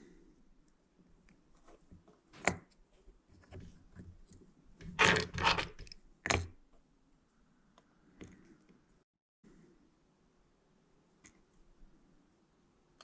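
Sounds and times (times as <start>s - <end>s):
plastic parts scraping: 3.4s - 6.5s.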